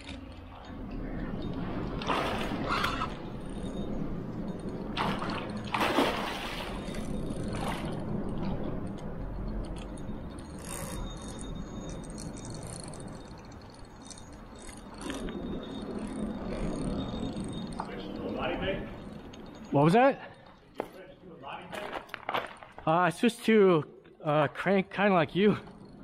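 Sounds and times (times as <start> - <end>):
soft water sounds: 2.0 - 9.0
fishing reel clicking: 8.8 - 19.7.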